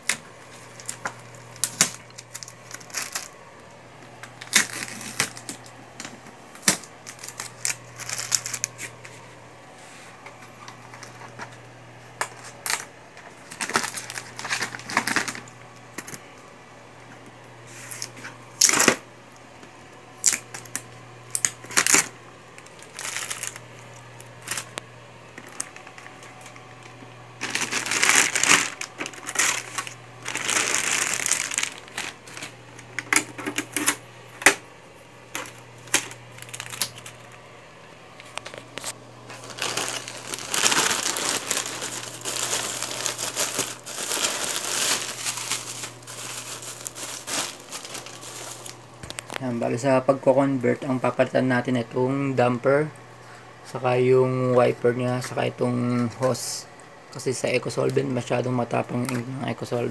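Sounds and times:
plastic bag crinkling: 0:00.0 - 0:09.2, 0:12.3 - 0:16.2, 0:20.2 - 0:24.8, 0:25.4 - 0:34.0, 0:35.3 - 0:37.4, 0:38.2 - 0:49.4
low steady hum: 0:00.0 - 0:59.9.

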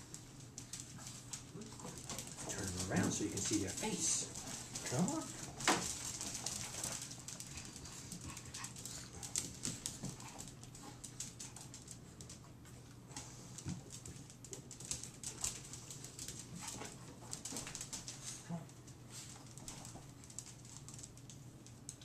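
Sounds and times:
dog claws clicking on floor: 0:00.0 - 0:22.0.

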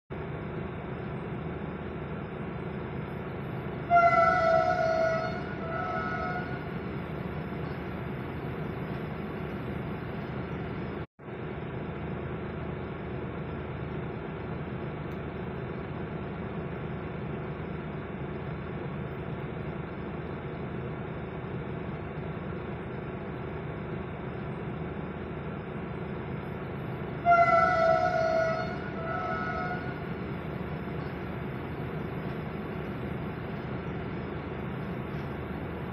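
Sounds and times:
train rumbling past: 0:00.1 - 0:35.9
train horn blasts: 0:03.8 - 0:06.8, 0:27.2 - 0:30.2.

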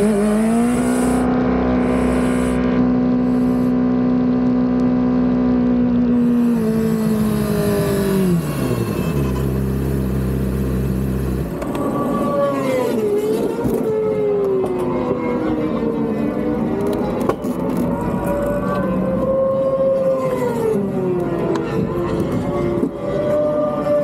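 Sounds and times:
motorcycle engine revving: 0:00.0 - 0:15.4.

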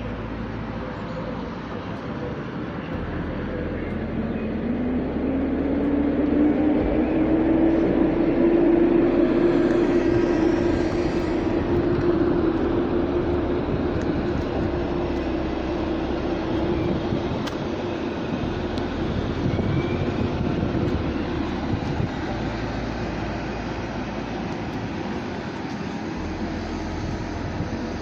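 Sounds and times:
electric locomotive motor whine: 0:00.0 - 0:28.0
wheels rumbling on rails: 0:00.0 - 0:28.0.

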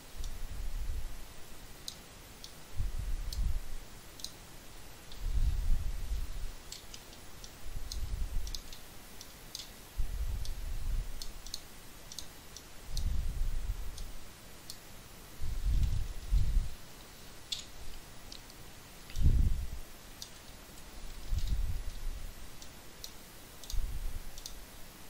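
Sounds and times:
computer mouse clicks: 0:04.2 - 0:04.4, 0:06.6 - 0:09.8, 0:11.2 - 0:13.2, 0:22.6 - 0:24.6.

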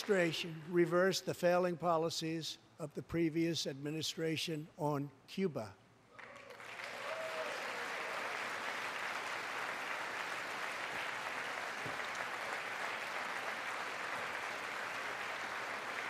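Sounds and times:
audience applauding: 0:06.2 - 0:16.0.

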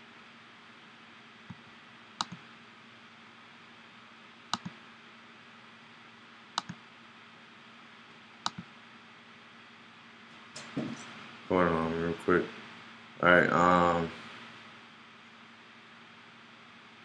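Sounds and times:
steady low hum: 0:00.0 - 0:17.0
computer mouse clicking: 0:02.2 - 0:02.4, 0:04.5 - 0:04.8, 0:06.6 - 0:06.8, 0:08.4 - 0:08.7.

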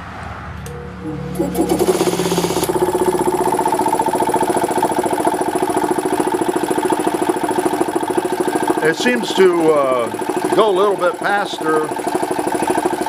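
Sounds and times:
air compressor pumping: 0:01.3 - 0:13.0.

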